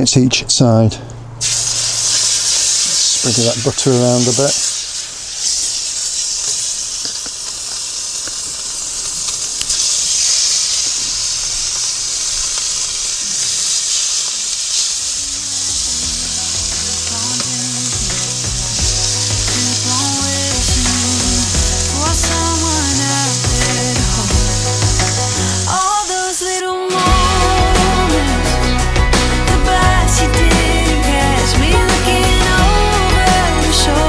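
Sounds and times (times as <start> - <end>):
steaks sizzling in butter: 1.4 - 34.0
background music with a beat: 15.9 - 34.0.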